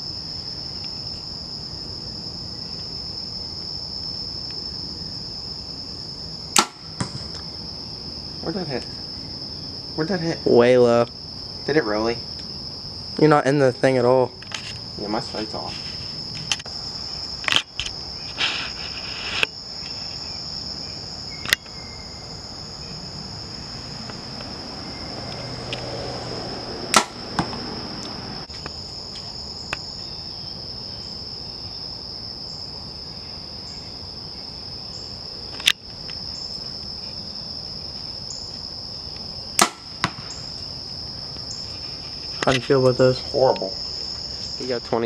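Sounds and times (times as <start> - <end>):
crickets chirring: 0.0 - 45.0
bow string snapping: 6.6 - 7.2, 26.9 - 28.1, 39.6 - 40.2.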